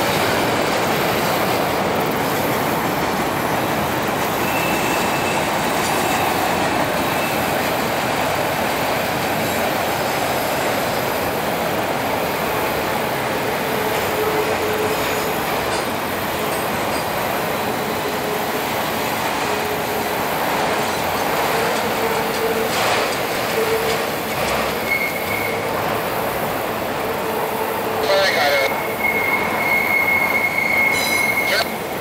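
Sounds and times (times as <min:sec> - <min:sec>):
train wheels rumbling on rail: 0:00.0 - 0:32.0
faint wheel squeals: 0:04.4 - 0:06.4, 0:24.6 - 0:25.7, 0:28.8 - 0:31.6.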